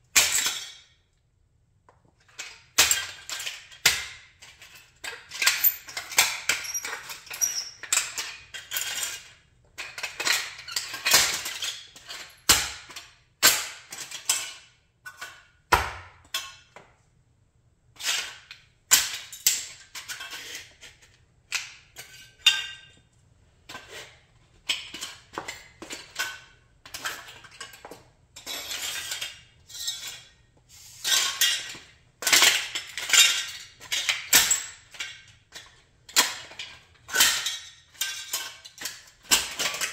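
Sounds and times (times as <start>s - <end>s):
parts scraping on concrete: 18.0s - 18.7s, 19.6s - 22.9s, 23.6s - 39.9s.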